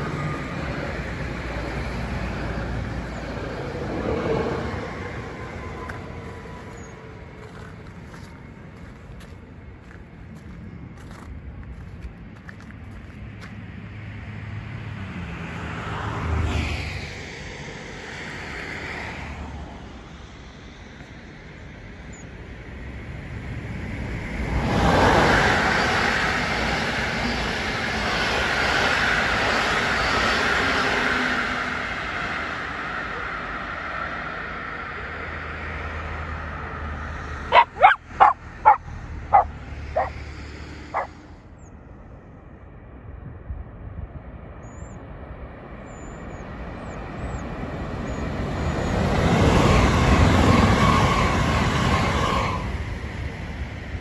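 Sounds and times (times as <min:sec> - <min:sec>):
train wheel and rail noise: 0:00.0 - 0:54.0
dog barking: 0:37.5 - 0:40.2, 0:40.9 - 0:41.1.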